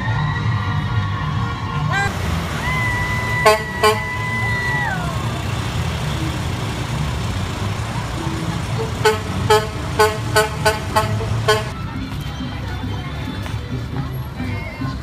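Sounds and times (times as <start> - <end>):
truck engine rumble: 0.0 - 15.0
vehicle horn tooting: 3.4 - 4.5, 8.8 - 11.8.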